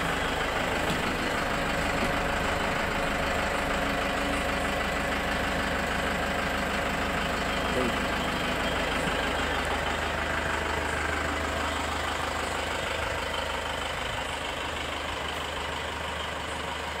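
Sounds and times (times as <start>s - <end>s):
minibus engine idling: 0.0s - 17.0s.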